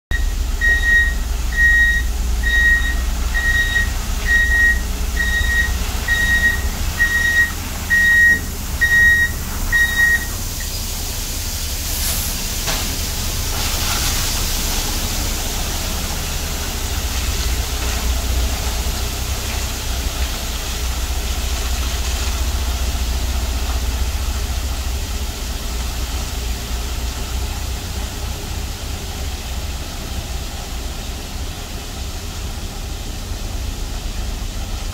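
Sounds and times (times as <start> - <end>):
truck engine running: 0.0 - 34.9
truck reversing alarm beeping: 0.1 - 11.1
water spraying onto gravel: 2.1 - 34.9
short hiss: 10.2 - 14.8.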